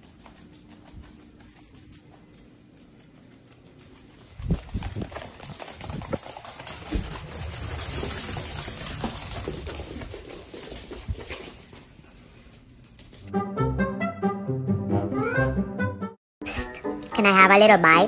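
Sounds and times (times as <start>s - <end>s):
dog paws pattering on hardwood floor: 0.0s - 13.3s.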